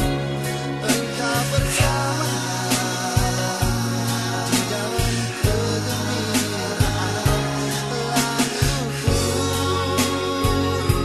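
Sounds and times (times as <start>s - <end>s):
bass line: 0.0s - 11.0s
person singing: 0.0s - 11.0s.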